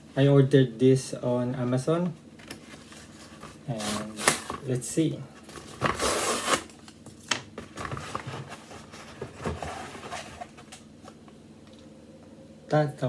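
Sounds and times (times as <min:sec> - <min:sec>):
cardboard rustling and crinkling: 0:02.4 - 0:04.8, 0:05.4 - 0:06.7, 0:07.5 - 0:10.8
cardboard ripping: 0:05.6 - 0:06.7.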